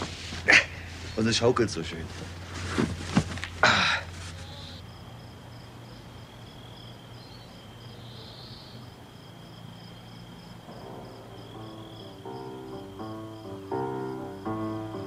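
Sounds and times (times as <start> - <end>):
crickets chirping: 0.0 - 15.0
soft music: 10.6 - 15.0.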